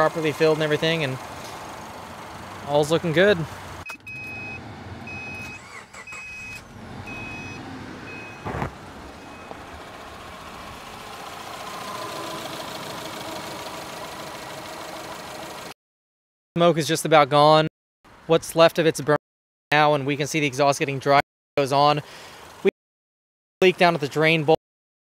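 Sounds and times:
car engine idling: 0:00.0 - 0:15.7
car dashboard warning chime: 0:04.0 - 0:08.5
heater fan rushing: 0:07.6 - 0:15.5
thump: 0:08.4 - 0:08.8.

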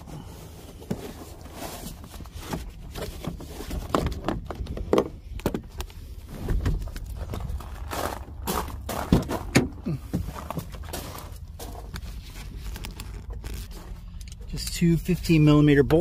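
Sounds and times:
steady low rumble: 0:00.0 - 0:16.0
footsteps on gravel: 0:05.9 - 0:14.1.

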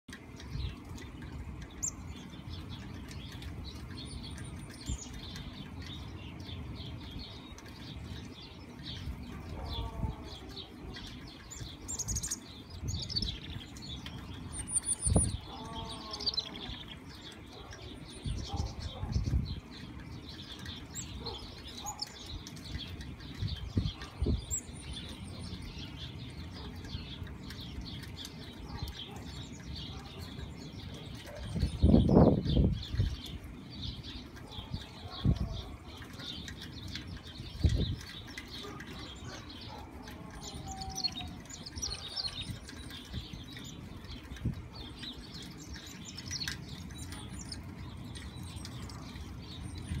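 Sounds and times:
chickadees calling: 0:00.1 - 0:50.0.

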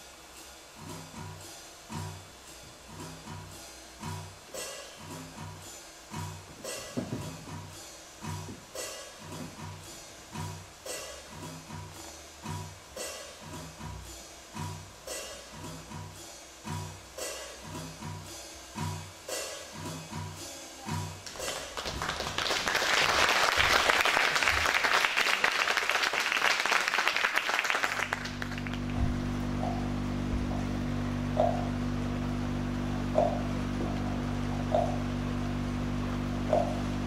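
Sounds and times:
loud dense hiss: 0:00.0 - 0:37.0
low droning chord: 0:28.2 - 0:37.0
low drum strokes: 0:28.8 - 0:37.0.

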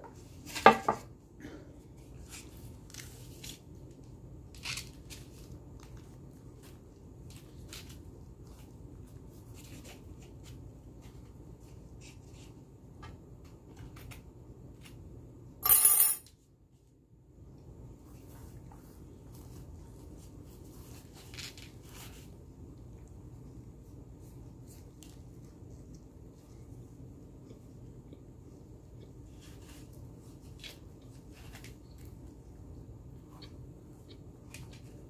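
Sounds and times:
tortilla wrap crinkling: 0:02.0 - 0:12.4, 0:18.9 - 0:22.5, 0:29.1 - 0:32.5.

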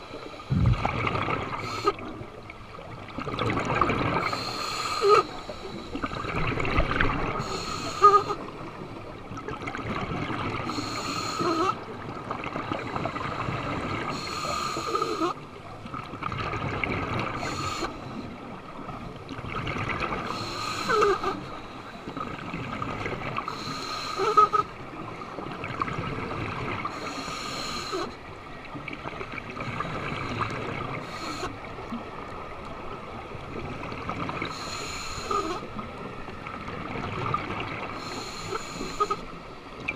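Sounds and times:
exhaled bubbles gurgling underwater: 0:00.0 - 0:39.9
regulator hissing breaths: 0:04.2 - 0:06.1, 0:07.4 - 0:08.5, 0:10.7 - 0:11.8, 0:14.1 - 0:15.4, 0:17.4 - 0:18.2, 0:20.3 - 0:22.4, 0:23.5 - 0:24.7, 0:26.9 - 0:28.2, 0:31.0 - 0:31.6, 0:34.5 - 0:35.7, 0:38.0 - 0:39.4.

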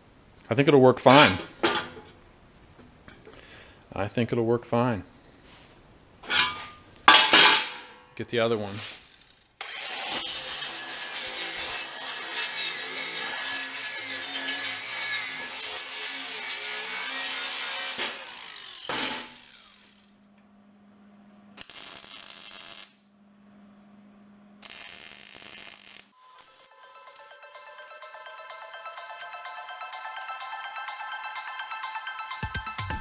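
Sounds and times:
welder tack welds: 0:08.6 - 0:20.1, 0:21.6 - 0:23.0, 0:24.6 - 0:32.6
angle grinder grinding steel: 0:08.8 - 0:20.1, 0:24.7 - 0:33.0.

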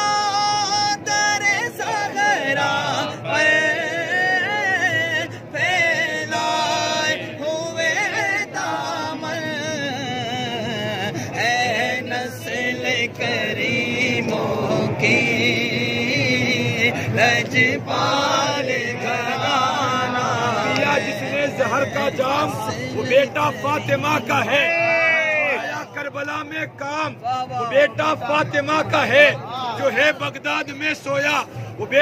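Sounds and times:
men chanting together: 0:00.8 - 0:26.0.

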